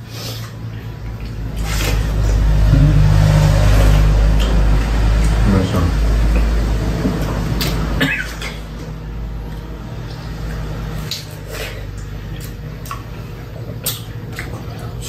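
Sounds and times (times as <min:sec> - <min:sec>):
people biting and chewing watermelon: 0:00.0 - 0:15.0
steady low hum: 0:00.0 - 0:15.0.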